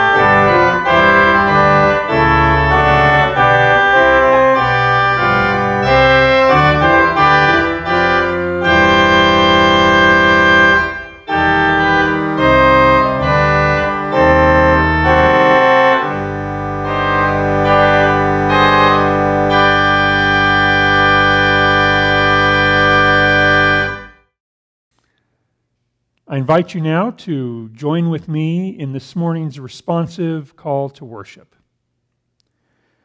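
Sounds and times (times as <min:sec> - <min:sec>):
church organ chords: 0:00.0 - 0:24.2.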